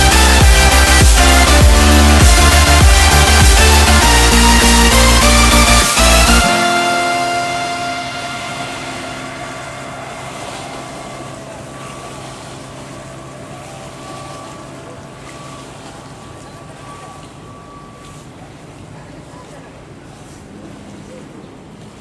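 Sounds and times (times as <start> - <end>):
music from loudspeakers: 0.0 - 11.7
ship low drone: 0.0 - 22.0.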